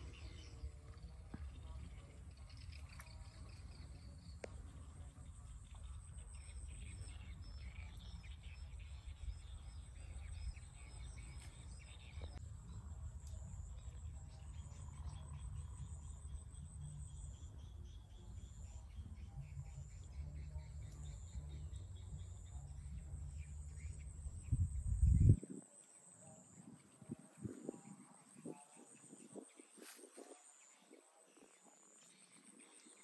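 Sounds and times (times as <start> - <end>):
low rumble: 19.6 - 25.4.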